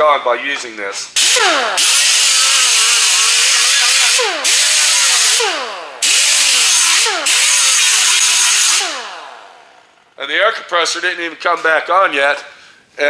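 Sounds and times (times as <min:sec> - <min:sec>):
air grinder hissing and whining: 0:01.2 - 0:10.0.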